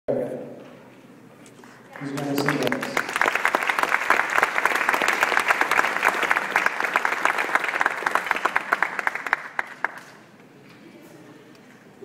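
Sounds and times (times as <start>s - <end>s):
audience applauding: 1.7s - 10.3s.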